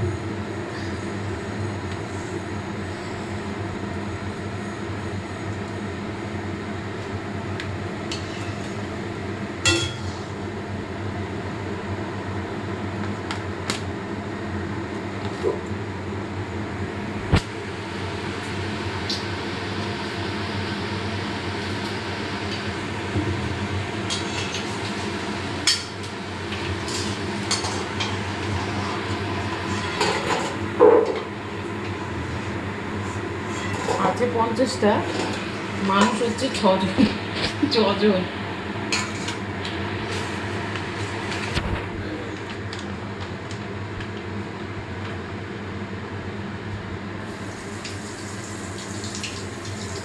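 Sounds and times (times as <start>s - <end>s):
oil sizzling deep-frying: 47.2s - 50.0s.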